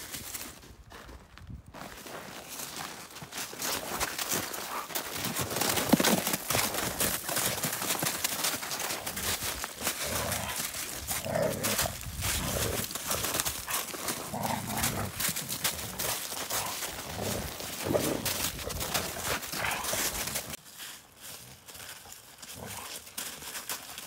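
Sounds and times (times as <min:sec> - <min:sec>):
paws crunching through snow: 0:00.0 - 0:24.0
dogs play growling: 0:09.0 - 0:20.6.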